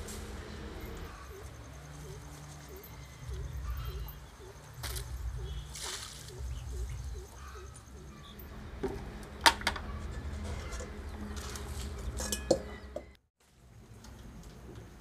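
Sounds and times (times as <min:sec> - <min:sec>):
steel bowl clinking: 0:12.2 - 0:12.8.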